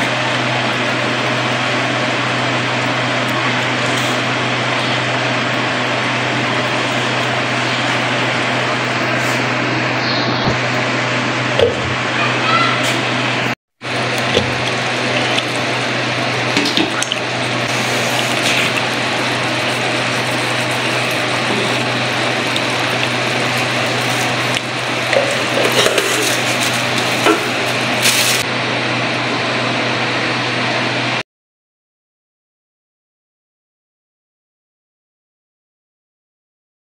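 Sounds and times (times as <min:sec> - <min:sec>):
eggs sizzling in a pan: 0:13.8 - 0:28.4.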